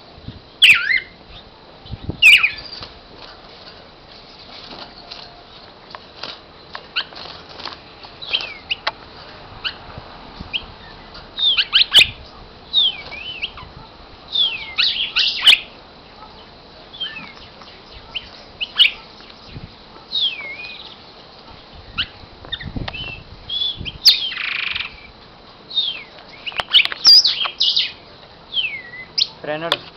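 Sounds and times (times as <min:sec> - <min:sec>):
bird singing sweeping whistles: 0:00.6 - 0:01.2, 0:02.2 - 0:02.8, 0:10.6 - 0:13.6, 0:18.2 - 0:20.9, 0:21.8 - 0:25.1, 0:25.7 - 0:29.3.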